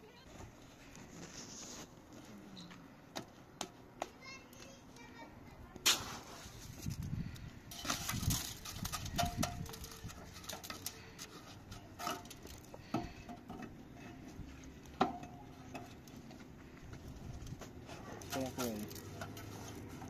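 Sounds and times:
hand tool knocking stones: 7.7s - 11.0s.

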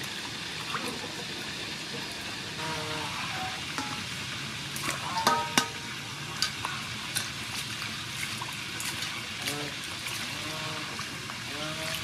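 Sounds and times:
sharp knocks on metal bowl: 5.2s - 5.9s.

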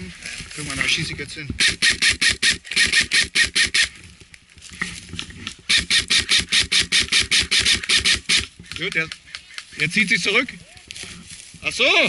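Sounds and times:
airsoft rifle rapid shots: 1.6s - 3.9s, 5.7s - 8.5s.

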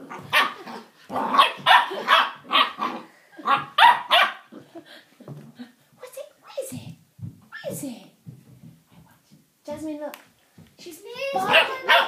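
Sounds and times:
puppy yapping: 0.1s - 4.5s, 11.4s - 12.0s.

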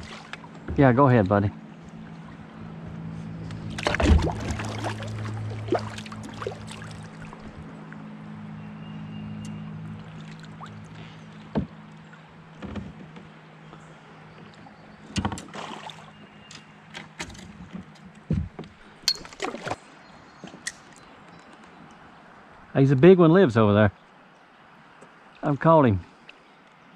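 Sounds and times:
low steady hum: 0.0s - 16.6s.

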